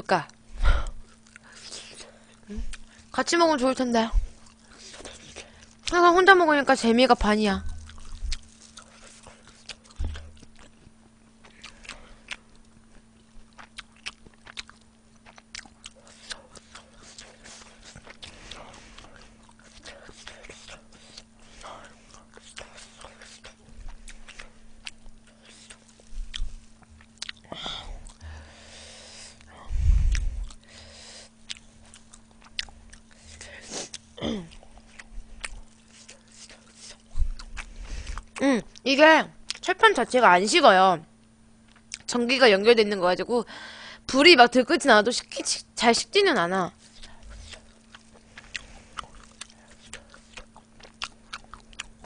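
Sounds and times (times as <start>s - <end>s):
person chewing food: 1.0s - 3.2s, 4.3s - 5.9s, 7.7s - 38.8s, 41.6s - 42.1s, 46.8s - 52.0s.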